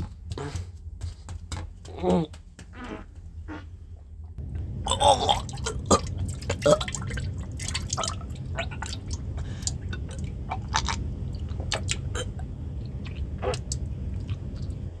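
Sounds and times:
steady low hum: 0.0 - 15.0
wet splats and squelches: 5.3 - 12.3.

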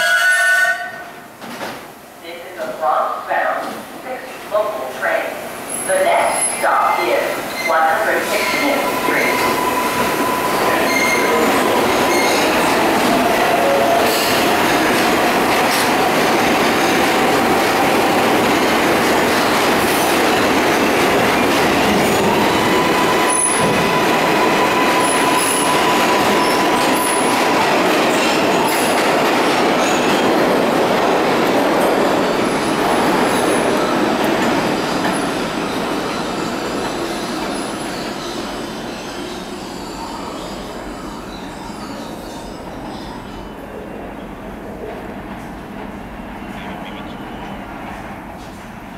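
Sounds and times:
subway train running: 0.0 - 48.9
train wheel squeal: 7.5 - 7.8, 8.4 - 12.8, 22.2 - 27.5, 34.8 - 43.6.

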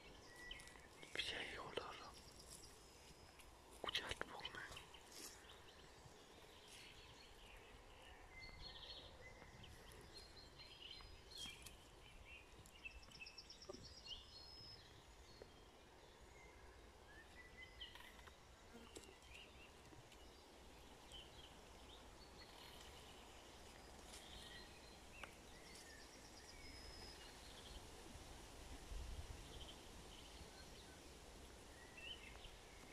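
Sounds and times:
birds chirping and trilling: 3.8 - 27.8.

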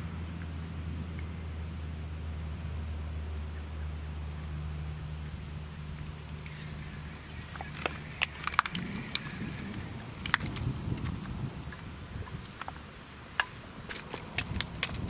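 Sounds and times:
low rumble: 0.0 - 12.8
low steady hum: 0.0 - 15.0
fishing reel clicks and rattles: 6.4 - 11.2.

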